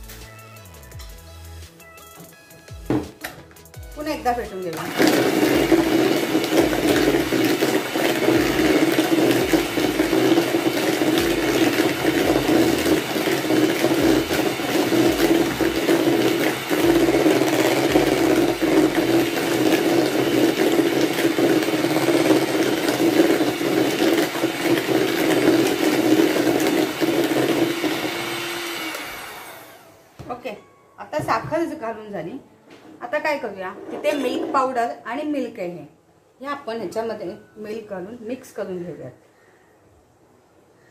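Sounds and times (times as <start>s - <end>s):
electric hand mixer running: 4.8s - 30.2s.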